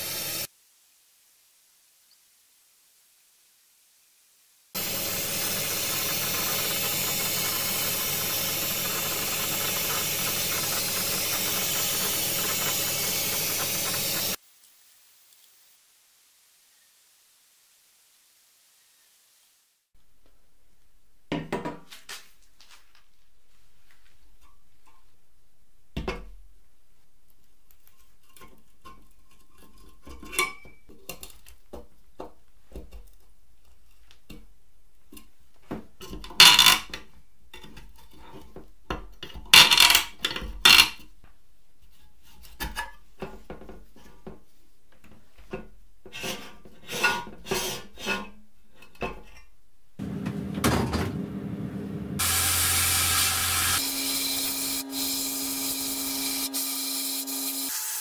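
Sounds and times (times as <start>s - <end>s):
sandblasting gun hissing: 0.0s - 0.5s, 4.8s - 14.4s, 52.2s - 58.0s
machine hum: 4.8s - 14.4s.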